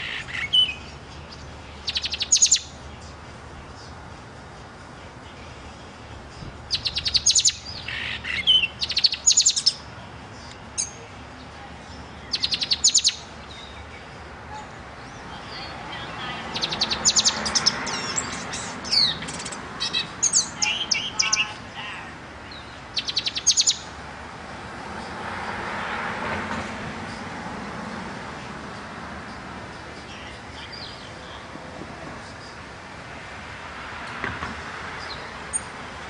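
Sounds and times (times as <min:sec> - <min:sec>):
songbird singing trills: 0:00.0 - 0:04.1, 0:05.1 - 0:24.0, 0:28.7 - 0:31.5.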